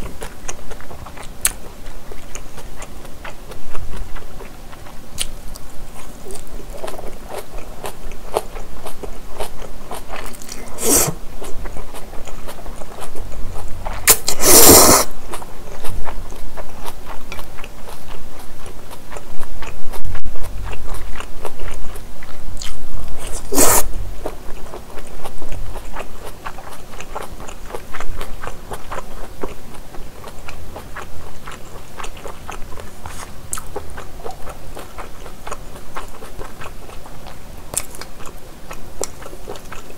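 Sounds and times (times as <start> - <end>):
moist chewing: 0.0 - 39.9
slurping noodles: 10.4 - 11.2, 14.0 - 15.1, 23.2 - 23.9.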